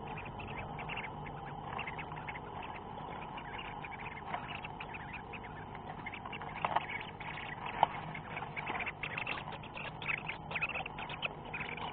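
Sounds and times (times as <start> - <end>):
birds rustling in nest box: 0.0 - 11.9.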